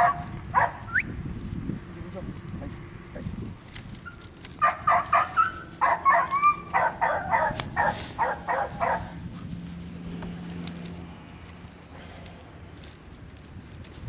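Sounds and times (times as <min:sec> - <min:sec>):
puppy yapping: 0:00.0 - 0:01.0, 0:04.0 - 0:09.1.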